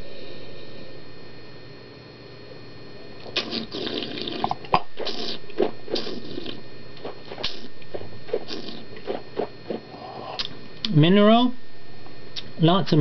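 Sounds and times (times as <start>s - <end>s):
wet slurping: 3.2s - 10.5s.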